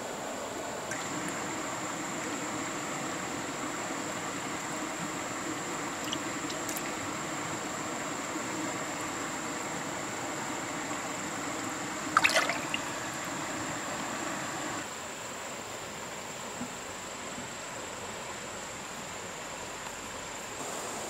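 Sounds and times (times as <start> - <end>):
water trickling into pool: 0.8 - 14.8
fish splashing: 0.9 - 1.6, 5.9 - 7.0, 12.0 - 13.6.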